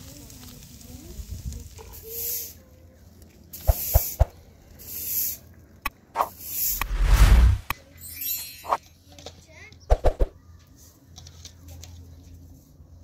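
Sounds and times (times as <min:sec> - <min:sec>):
rustling hisses: 0:00.8 - 0:02.8, 0:03.5 - 0:05.5, 0:06.2 - 0:07.7
heavy rumbling rush: 0:06.7 - 0:07.7.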